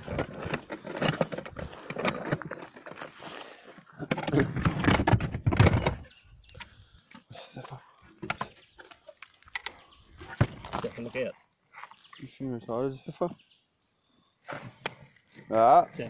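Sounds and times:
cooler box scraping on gravel: 0.0 - 5.8.

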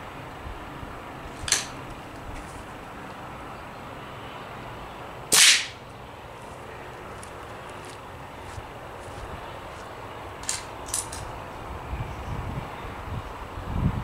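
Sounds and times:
air rifle shots: 5.3 - 5.8.

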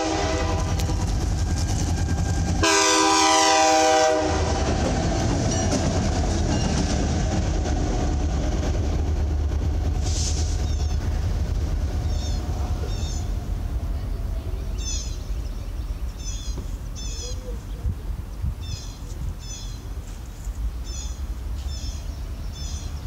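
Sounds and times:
locomotive air horn chord: 0.0 - 1.0, 2.6 - 4.8
train wheels on rails: 0.0 - 23.0.

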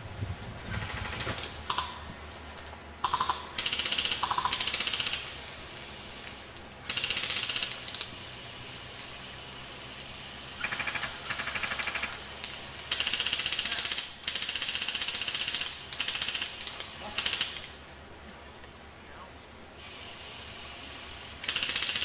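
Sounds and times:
airsoft guns firing full-auto: 0.7 - 2.1, 3.0 - 5.9, 6.8 - 8.2, 10.6 - 17.8, 21.4 - 22.0.

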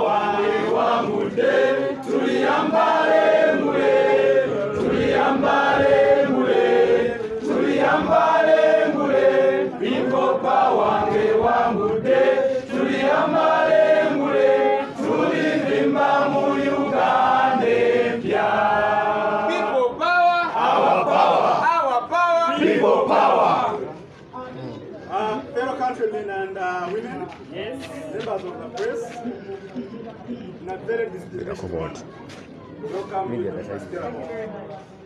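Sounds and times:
group singing in unison: 0.0 - 21.6, 22.5 - 23.9.

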